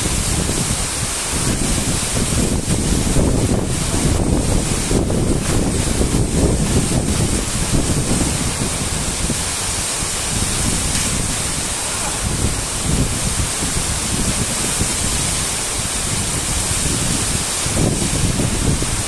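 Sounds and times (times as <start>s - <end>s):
waterfall rushing: 0.0s - 19.0s
wind buffeting microphone: 0.0s - 19.0s.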